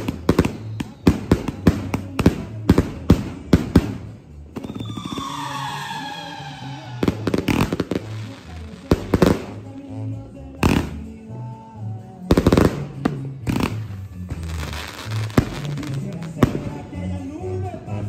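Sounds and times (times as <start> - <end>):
firework bangs: 0.0 - 9.8
falling whistle-like tone: 4.6 - 7.7.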